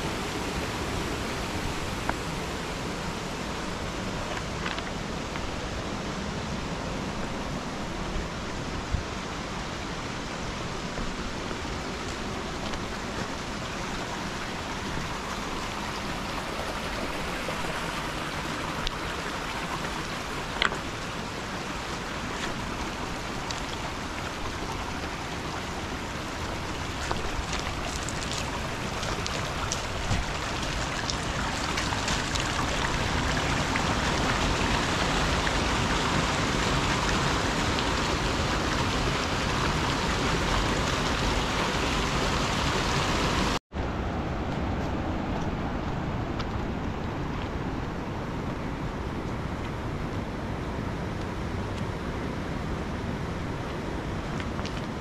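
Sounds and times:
steady rushing noise: 0:00.0 - 0:55.0
footsteps on stones: 0:26.9 - 0:33.0.

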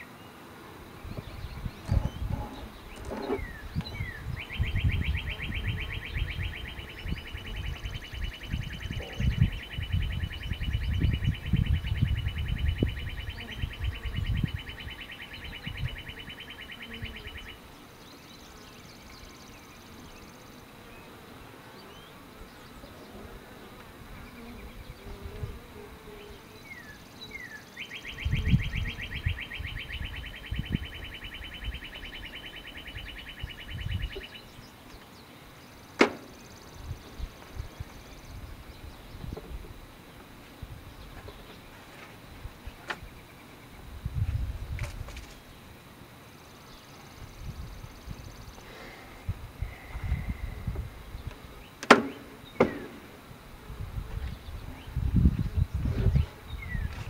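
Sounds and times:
wooden hive frames knocking: 0:51.8 - 0:53.1.

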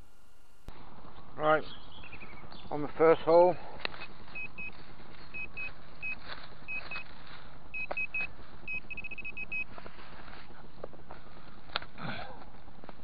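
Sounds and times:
metal detector probe beeping: 0:04.0 - 0:07.1, 0:07.7 - 0:09.8.

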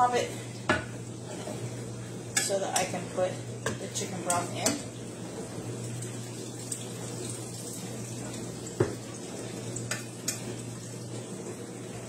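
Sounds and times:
liquid pouring into a pot: 0:04.8 - 0:11.4.

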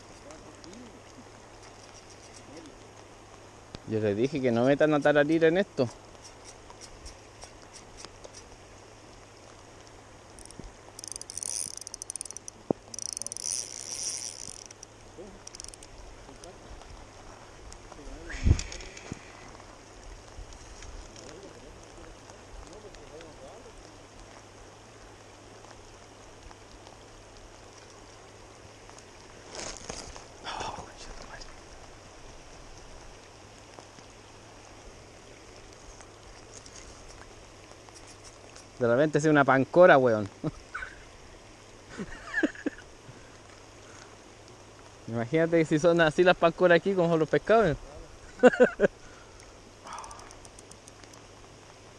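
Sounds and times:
faint ticks: 0:00.0 - 0:03.9, 0:04.6 - 0:38.8, 0:41.9 - 0:45.0, 0:48.4 - 0:51.8
hiss of water: 0:00.0 - 0:51.9
fishing reel rapid clicking: 0:10.4 - 0:15.9.

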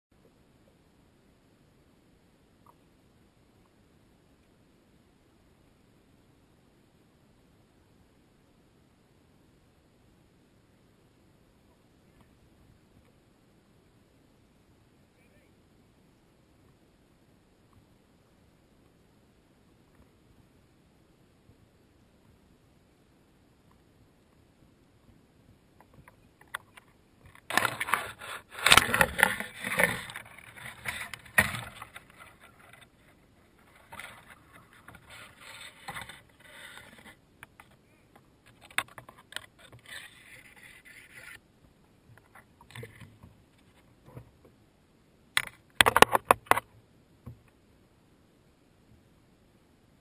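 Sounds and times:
branches scraping against kayak: 0:26.6 - 0:37.8, 0:38.4 - 0:41.4, 0:42.2 - 0:44.2.

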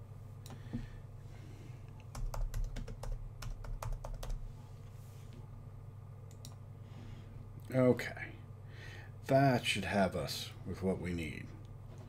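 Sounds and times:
steady low hum: 0:00.0 - 0:12.0
typing on keyboard: 0:02.1 - 0:04.4.

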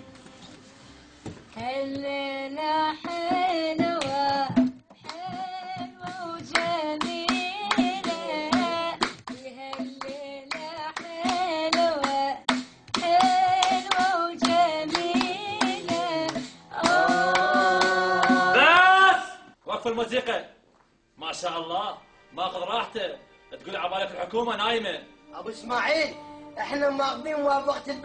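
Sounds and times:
hand claps: 0:03.8 - 0:05.4, 0:06.0 - 0:18.5.

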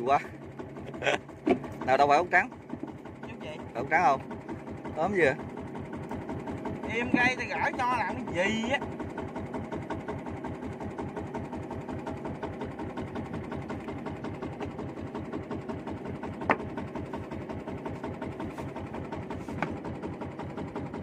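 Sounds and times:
boat engine chugging: 0:00.0 - 0:21.0.

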